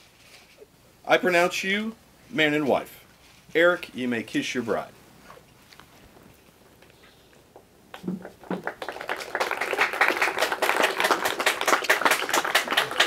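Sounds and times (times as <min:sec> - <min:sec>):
people clapping: 0:07.9 - 0:13.0.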